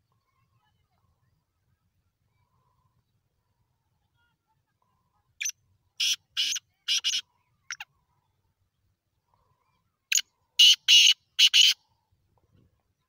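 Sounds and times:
francolin harsh calls: 0:05.4 - 0:07.9, 0:10.1 - 0:11.9.

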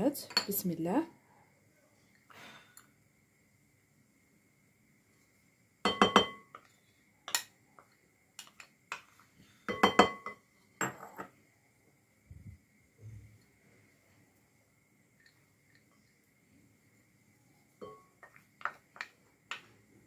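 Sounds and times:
glass bowl clinking: 0:05.8 - 0:06.7, 0:09.7 - 0:11.3, 0:17.8 - 0:19.1.

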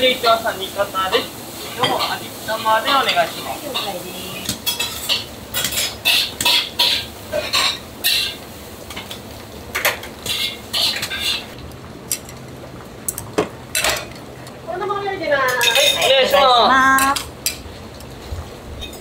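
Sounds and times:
metal utensils clinking on bowls: 0:01.8 - 0:08.4, 0:13.7 - 0:14.2, 0:15.5 - 0:18.1.

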